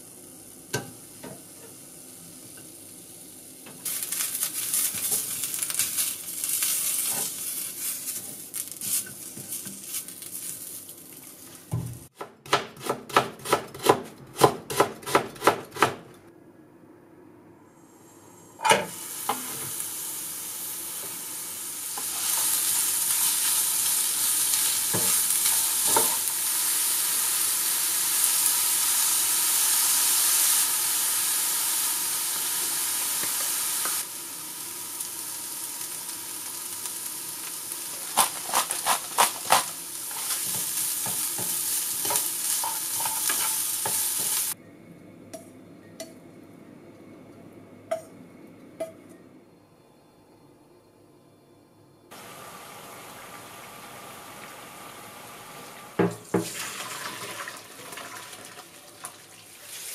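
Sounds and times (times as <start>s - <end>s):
carrots sizzling in a frying pan: 0.0s - 11.8s, 18.9s - 44.6s, 52.1s - 59.9s.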